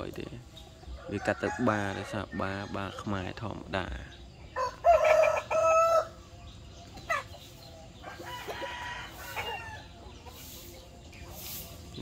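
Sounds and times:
chickens clucking: 0.0s - 12.0s
rooster crowing: 4.6s - 6.2s, 8.0s - 9.9s.

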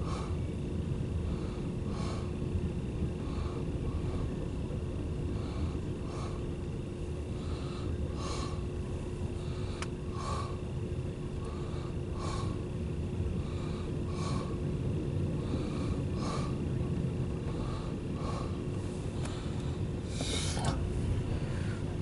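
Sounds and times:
freight train rumbling: 0.0s - 22.0s
steady hum: 0.0s - 22.0s.

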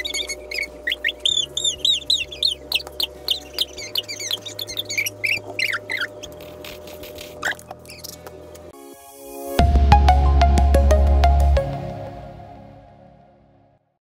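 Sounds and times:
high bird-like chirping: 0.0s - 6.3s, 7.4s - 8.2s
low sustained music chords: 8.6s - 13.9s.

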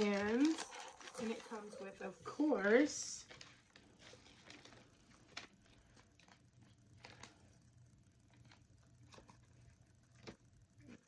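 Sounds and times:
packaging clicks: 0.0s - 1.7s
fabric rustling: 0.0s - 7.5s.

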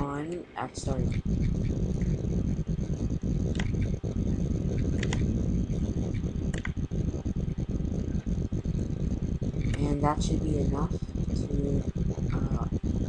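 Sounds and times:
low steady rumble: 0.0s - 13.0s
computer mouse clicks: 3.5s - 6.8s, 9.6s - 10.0s.

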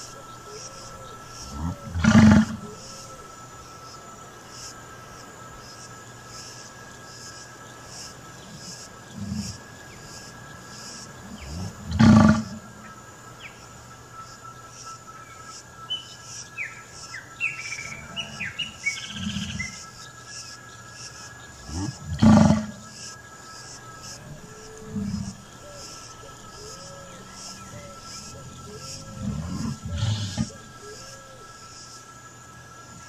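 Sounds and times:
loud low animal calls: 0.0s - 3.4s, 8.4s - 10.2s, 11.2s - 12.9s, 17.7s - 19.9s, 21.5s - 23.1s, 24.0s - 31.6s
pulsing insect buzz: 0.0s - 33.0s.

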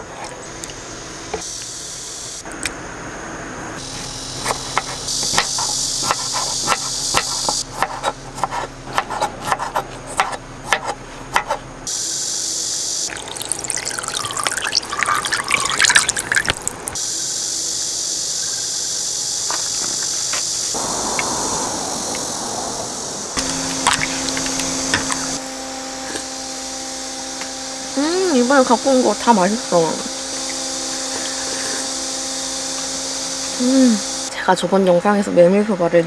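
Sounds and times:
broth pouring and splashing: 13.1s - 17.0s, 23.7s - 24.6s.

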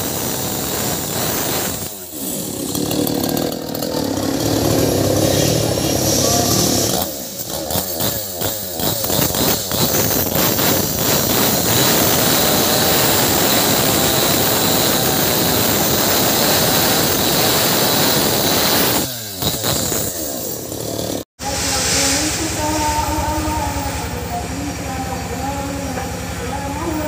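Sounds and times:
chainsaw cutting wood: 0.0s - 21.3s
chainsaw revving: 0.0s - 21.3s.

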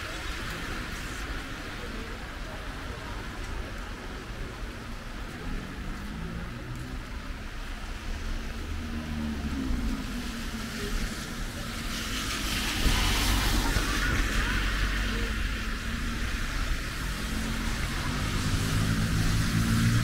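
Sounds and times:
heavy rain on wet street: 0.0s - 20.0s
car tyres hissing through water: 8.0s - 20.0s.

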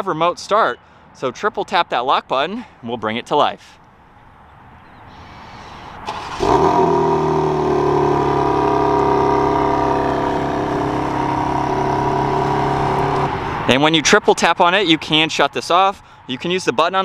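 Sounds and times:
car engine starting and idling: 5.9s - 13.8s.

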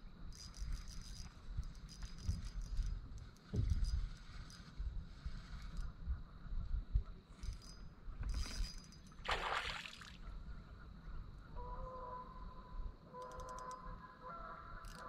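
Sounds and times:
wind and water rumble: 0.0s - 11.6s
fish splashing: 9.3s - 10.2s.

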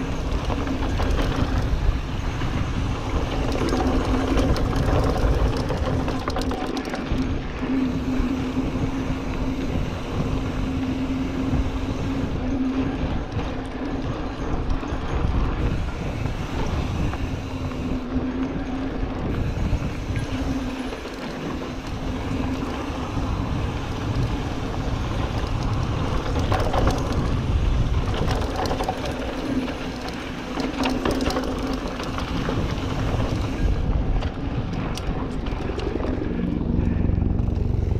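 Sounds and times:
bike rattling and clicking: 0.0s - 37.9s
tyres rumbling over dirt: 0.0s - 37.9s
wind buffeting microphone: 0.0s - 37.9s
steady hum: 28.9s - 37.9s.

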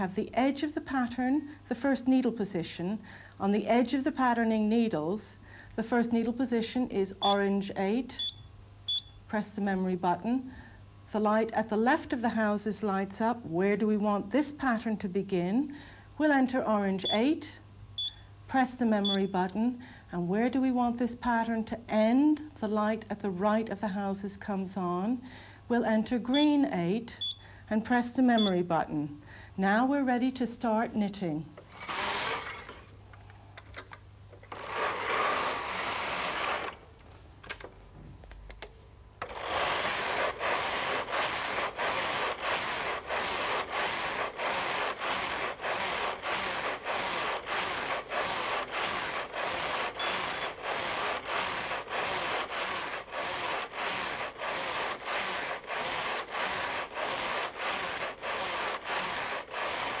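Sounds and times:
knitting machine carriage passing: 34.5s - 36.8s, 39.2s - 60.0s.

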